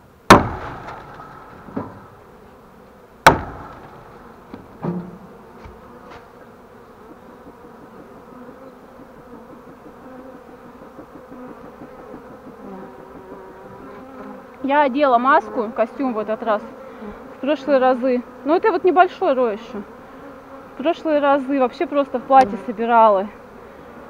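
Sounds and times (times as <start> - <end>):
bee swarm buzzing: 0.3 - 24.0.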